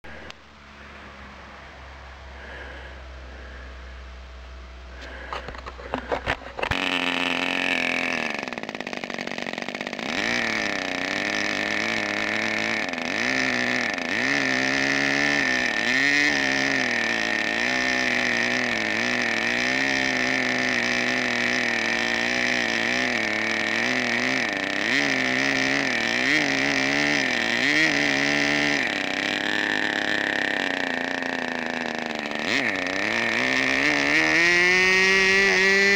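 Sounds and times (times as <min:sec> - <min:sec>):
model aeroplane engine running: 0:04.9 - 0:35.9
engine sharp pops: 0:05.0 - 0:14.4.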